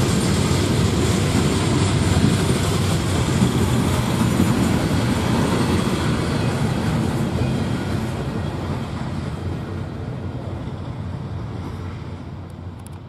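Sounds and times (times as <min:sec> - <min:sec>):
freight train rumbling on rails: 0:00.0 - 0:13.0.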